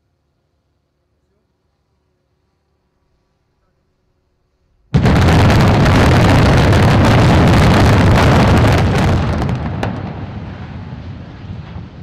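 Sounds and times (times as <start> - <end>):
building collapse rumble: 4.9 - 12.0
sharp cracks: 5.0 - 10.3.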